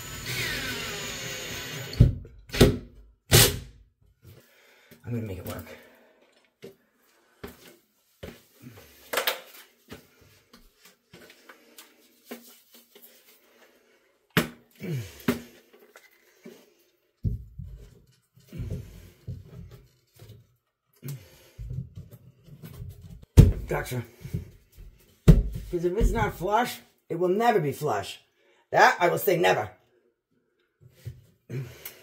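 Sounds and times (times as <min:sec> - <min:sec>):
clicks and scrapes of drywall work: 0:15.1 - 0:23.3.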